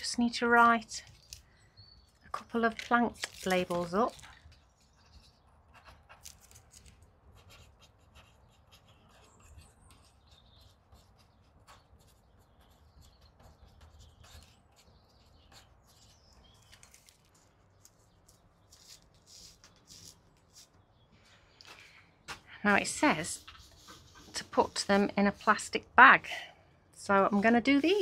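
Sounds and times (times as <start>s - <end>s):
marker pen scratching on plastic: 2.5s - 20.8s, 22.8s - 25.8s.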